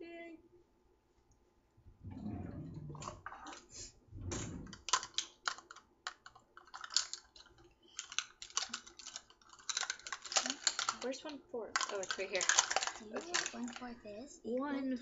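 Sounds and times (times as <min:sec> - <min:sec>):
muffled handling rumbles: 0:04.0 - 0:05.0
plastic cups clacking: 0:04.4 - 0:14.0.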